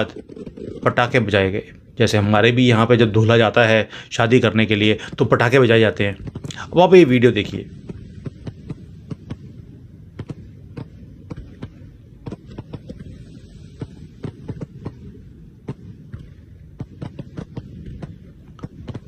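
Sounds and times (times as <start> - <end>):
fireworks banging: 0.0 - 1.7, 4.4 - 19.0
low rumble: 4.2 - 19.0.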